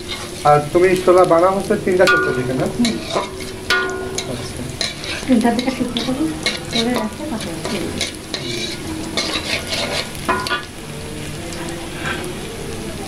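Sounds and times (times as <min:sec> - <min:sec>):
spatula scraping a wok: 0:00.0 - 0:00.5, 0:02.1 - 0:10.8
onions sizzling in hot oil: 0:00.0 - 0:13.0.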